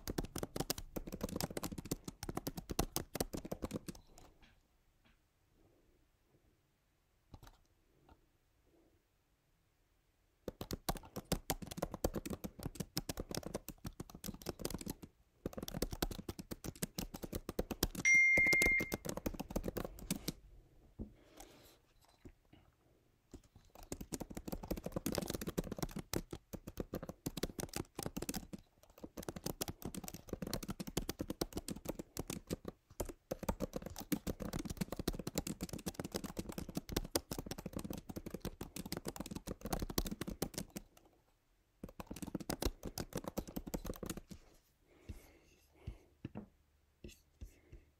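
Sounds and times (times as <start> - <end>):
short high beep: 18.1 - 19.0.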